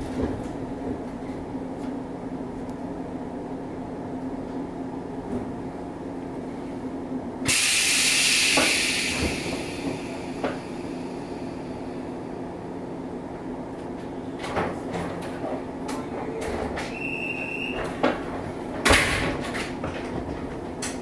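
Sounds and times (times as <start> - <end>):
train equipment hum: 0.0 - 21.0
compressed air hiss: 7.5 - 11.2.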